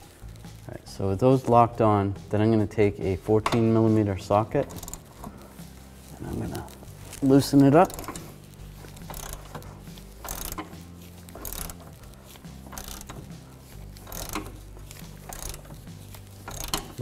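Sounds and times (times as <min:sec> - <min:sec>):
hand ratchet clicking: 0:04.6 - 0:05.5, 0:07.1 - 0:17.0.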